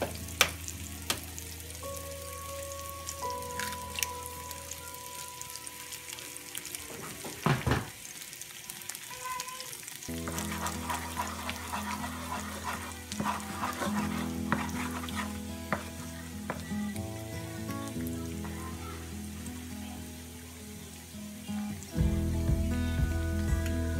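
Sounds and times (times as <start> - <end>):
background music: 0.0 - 6.8, 21.4 - 23.9
egg sizzling in oil: 0.0 - 17.0
wooden spatula scraping pan: 10.1 - 16.6.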